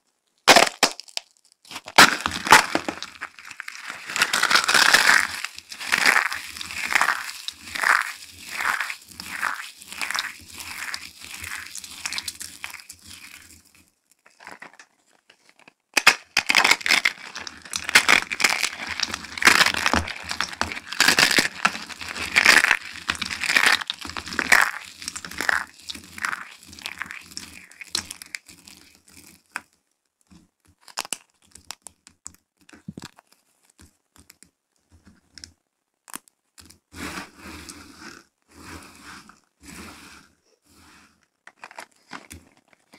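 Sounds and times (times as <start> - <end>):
dry soap shards crunching: 0.4 - 14.9, 15.5 - 29.6, 30.8 - 33.3, 41.5 - 42.9.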